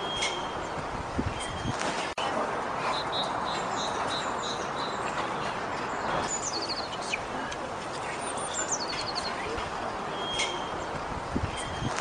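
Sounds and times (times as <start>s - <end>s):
small songbirds singing: 0.0s - 1.8s, 2.9s - 5.2s, 5.8s - 7.3s, 7.9s - 12.0s.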